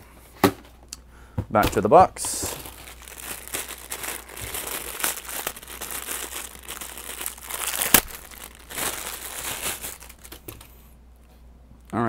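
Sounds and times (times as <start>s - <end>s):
plastic bag crinkling: 2.2s - 10.8s.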